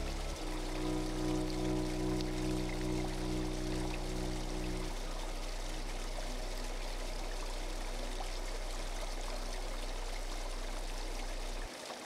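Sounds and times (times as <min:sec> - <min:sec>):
deep low hum: 0:00.0 - 0:11.7
waterfall onto stones: 0:05.0 - 0:12.0.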